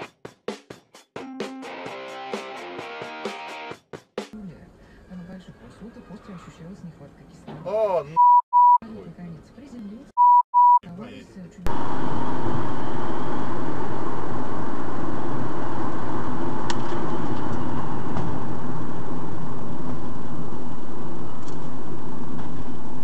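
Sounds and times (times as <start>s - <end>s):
vehicle engine and road noise: 11.1s - 23.0s.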